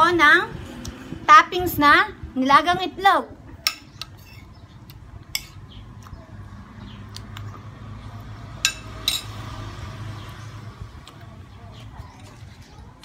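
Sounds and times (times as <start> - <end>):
metal spoon clinking on plate: 5.3 - 5.6, 8.6 - 9.4.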